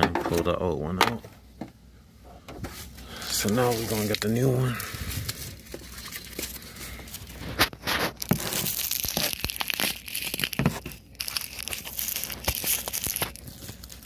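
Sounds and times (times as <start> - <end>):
bubble wrap crinkling: 3.1 - 14.0.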